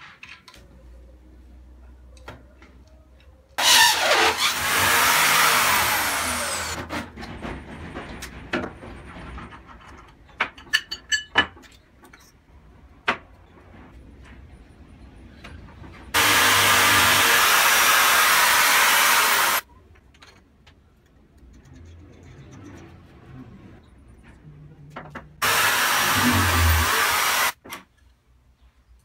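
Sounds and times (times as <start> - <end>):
drill whining: 3.6 - 6.8, 16.2 - 19.6, 25.4 - 27.6.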